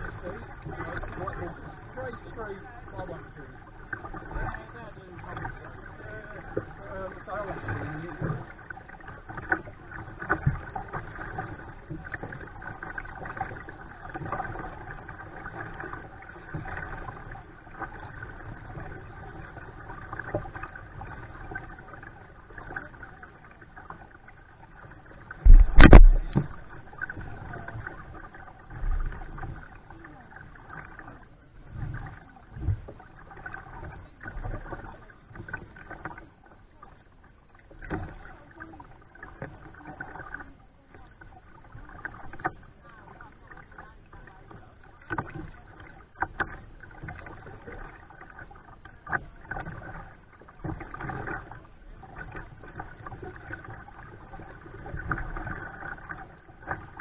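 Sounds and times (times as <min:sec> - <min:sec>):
paddle splashing water: 0:00.0 - 0:57.0
loud thump: 0:25.4 - 0:26.6
light knocks on kayak hull: 0:25.4 - 0:27.2.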